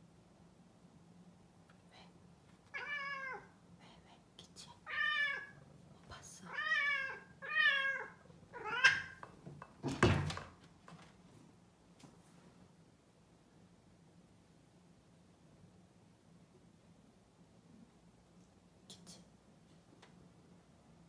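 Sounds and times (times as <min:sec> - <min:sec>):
cat meowing: 0:02.7 - 0:03.5, 0:04.8 - 0:05.6, 0:06.5 - 0:09.3.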